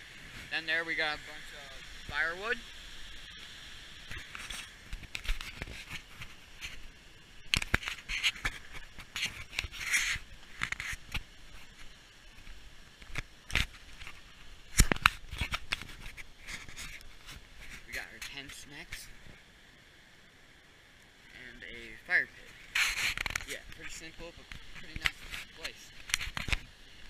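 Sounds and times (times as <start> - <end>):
camera handling noise: 13.0 - 17.1, 22.6 - 23.6, 24.5 - 26.7.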